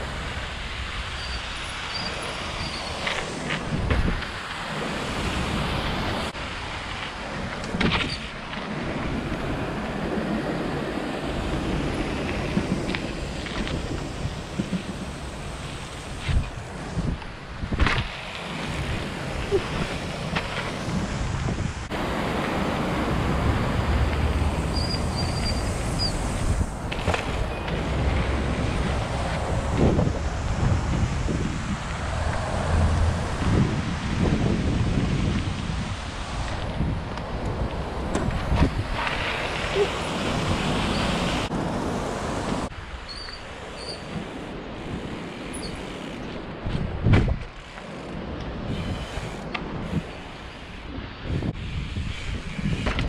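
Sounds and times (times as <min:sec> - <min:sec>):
wind buffeting microphone: 0:00.0 - 0:53.0
bike rolling over concrete: 0:00.2 - 0:41.5, 0:42.4 - 0:53.0
sharp knocks from bike: 0:07.7 - 0:08.2, 0:17.7 - 0:18.2, 0:46.7 - 0:47.7, 0:52.8 - 0:53.0.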